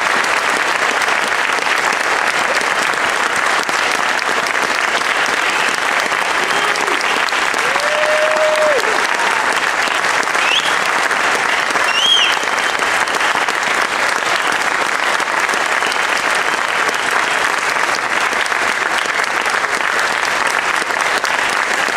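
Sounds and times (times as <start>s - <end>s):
audience applauding: 0.0s - 21.9s
high-pitched calls from crowd: 10.3s - 10.9s, 11.8s - 12.9s.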